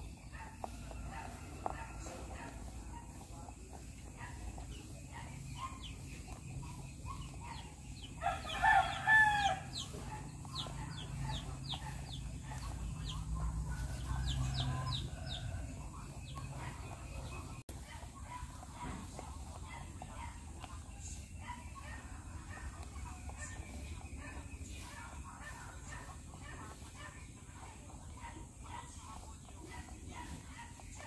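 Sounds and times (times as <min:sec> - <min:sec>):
rabbits crunching feed pellets: 0:00.0 - 0:31.0
rooster crowing: 0:08.2 - 0:09.8.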